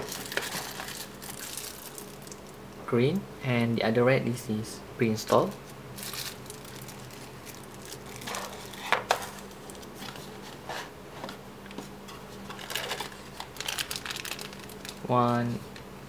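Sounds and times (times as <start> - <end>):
plastic bags crinkling: 0.0 - 2.6, 5.4 - 10.4, 12.4 - 15.1
faint steady hum: 0.0 - 16.0.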